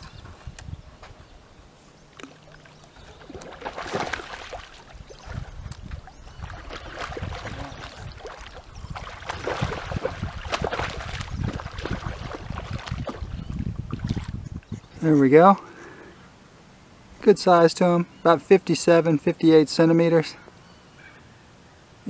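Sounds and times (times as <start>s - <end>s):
fish splashing in shallow water: 2.1s - 14.4s.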